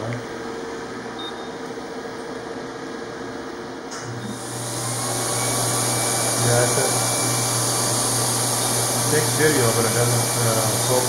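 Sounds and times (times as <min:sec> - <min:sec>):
smoke evacuator hissing: 0:04.3 - 0:11.0.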